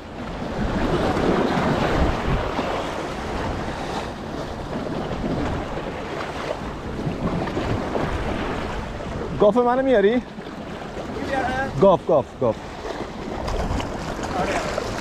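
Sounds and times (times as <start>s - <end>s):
wind buffeting microphone: 0.0s - 15.0s
waves washing over rocks: 12.5s - 15.0s.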